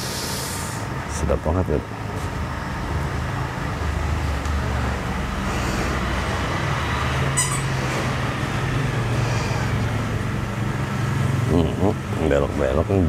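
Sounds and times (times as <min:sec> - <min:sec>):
noisy background haze: 0:00.0 - 0:07.1.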